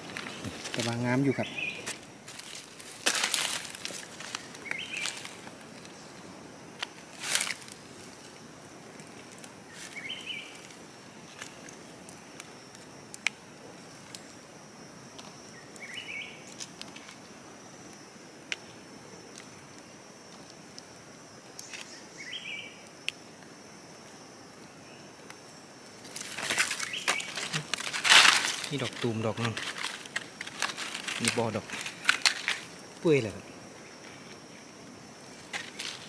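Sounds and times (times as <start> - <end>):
dry leaves rustling: 0.0 - 6.0, 6.8 - 8.3, 9.0 - 11.7, 26.0 - 33.3, 35.3 - 36.0
high insect whine: 0.0 - 36.0
bird chirping: 0.3 - 1.9, 4.6 - 5.2, 15.6 - 16.4, 21.6 - 22.8.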